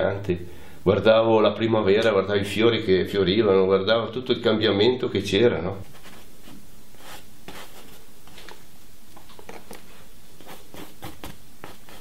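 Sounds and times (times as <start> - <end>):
steady background hiss: 0.0 - 12.0
paintbrush strokes on canvas: 5.9 - 8.0, 9.9 - 12.0.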